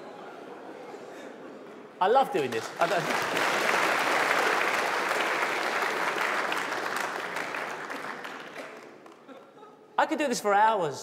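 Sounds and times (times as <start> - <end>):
audience applauding: 2.4 - 9.3.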